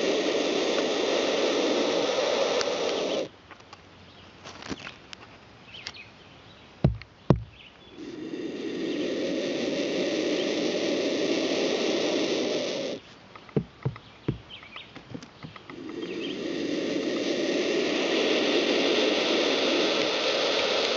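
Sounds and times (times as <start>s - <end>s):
vulture chicks hissing: 0.0s - 3.3s, 7.6s - 20.9s.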